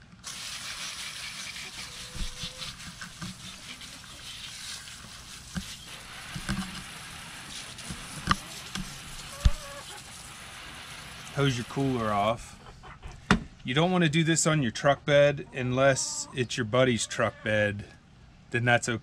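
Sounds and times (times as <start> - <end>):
hose nozzle spraying water: 0.0 - 12.3.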